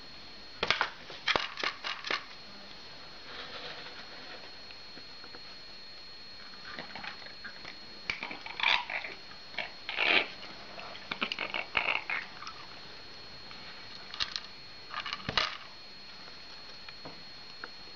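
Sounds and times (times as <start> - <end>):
cat crunching dry food: 6.6 - 12.7.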